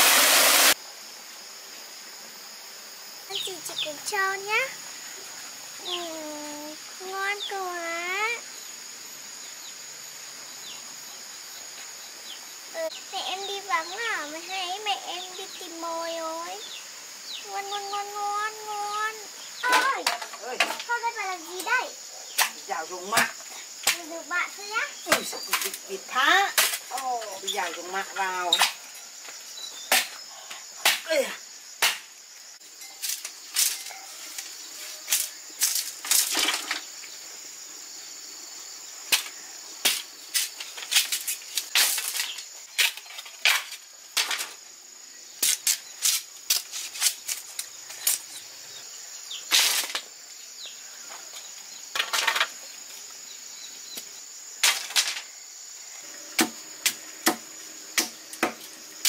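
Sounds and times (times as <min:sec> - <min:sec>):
insects buzzing: 0:00.0 - 0:59.0
machete chopping bamboo: 0:30.8 - 0:31.2, 0:31.8 - 0:32.1, 0:56.4 - 0:58.7.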